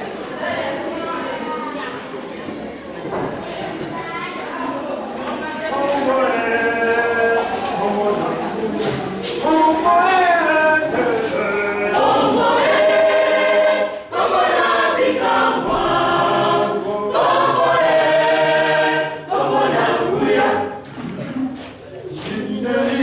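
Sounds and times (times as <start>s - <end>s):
choir singing: 5.7s - 21.0s, 22.1s - 23.0s.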